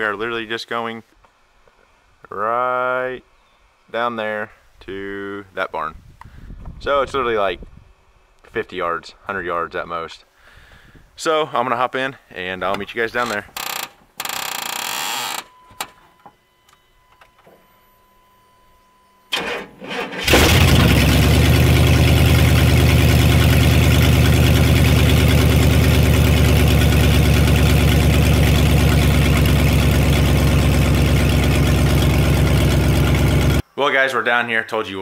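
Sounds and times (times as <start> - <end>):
faint steady tone: 14.2 - 19.7
truck engine cranking and idling: 19.3 - 33.6.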